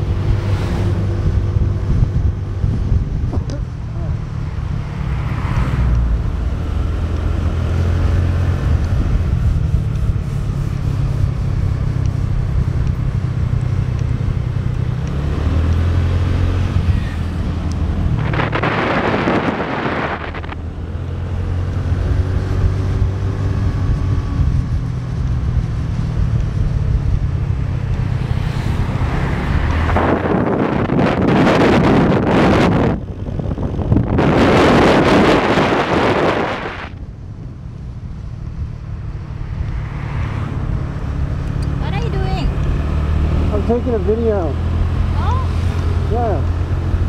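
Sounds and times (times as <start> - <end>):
wind hissing on microphone: 0.0 - 12.6, 16.6 - 20.8, 22.1 - 44.0
loud rush of noise: 16.8 - 20.6, 34.0 - 37.0.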